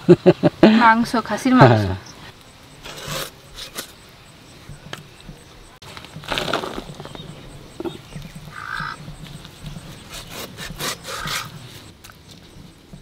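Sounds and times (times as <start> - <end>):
crow cawing: 8.5 - 9.1.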